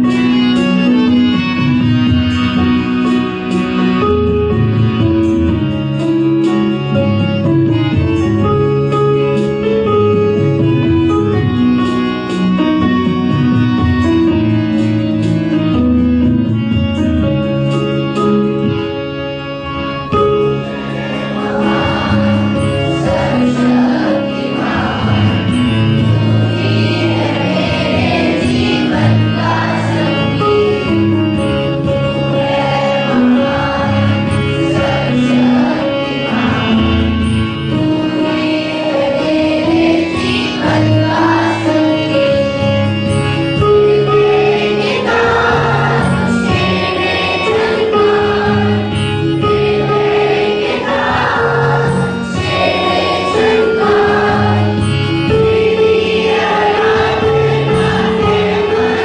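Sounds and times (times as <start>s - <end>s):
backing music: 0.0s - 59.0s
choir singing: 20.5s - 31.2s, 31.9s - 42.6s, 43.8s - 59.0s.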